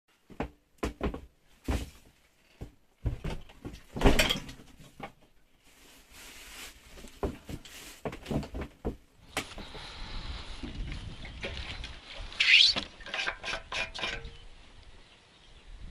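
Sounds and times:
knocks and clunks on wood: 0.2s - 5.2s, 7.2s - 9.1s.

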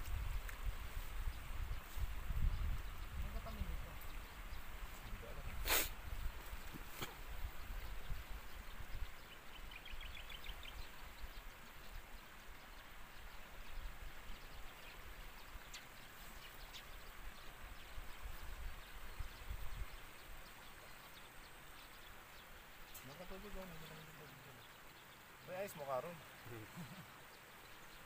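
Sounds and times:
wind rumble on microphone: 0.0s - 9.2s.

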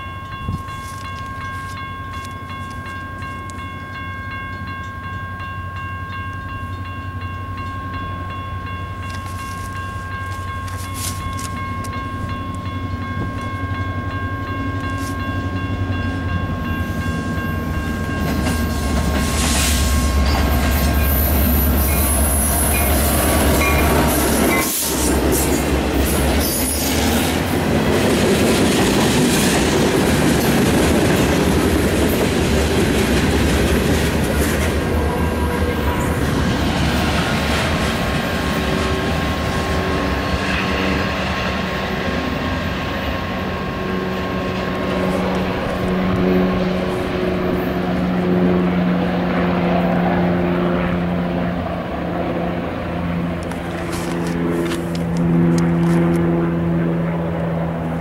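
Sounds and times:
railroad crossing bell ringing: 0.0s - 58.0s
locomotive engine rumble: 0.1s - 58.0s
train wheels clattering on rails: 9.0s - 43.4s.

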